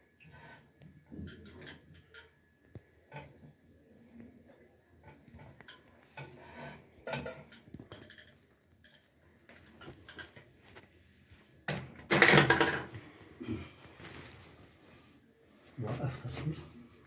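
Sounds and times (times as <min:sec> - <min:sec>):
metal drum clattering on tile: 0:11.9 - 0:13.0.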